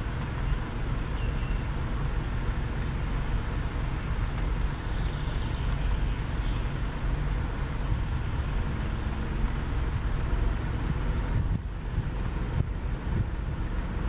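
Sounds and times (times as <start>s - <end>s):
wind rumbling on microphone: 0.0s - 14.0s.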